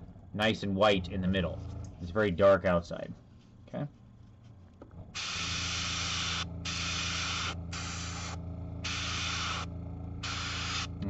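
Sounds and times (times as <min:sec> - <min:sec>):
steady low hum: 0:00.0 - 0:11.0
airbrush spraying hisses: 0:05.2 - 0:11.0.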